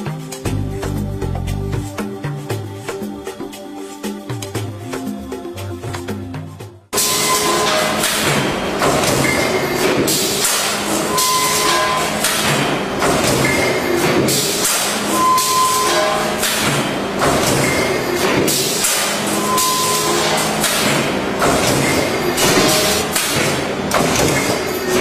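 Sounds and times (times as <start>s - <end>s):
brief high tone: 7.0s - 8.0s.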